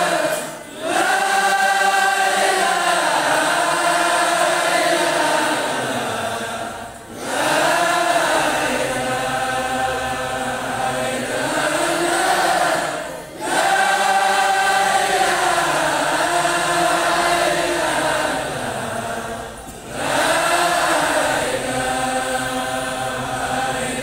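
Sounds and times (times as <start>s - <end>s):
men chanting: 0.0s - 24.0s.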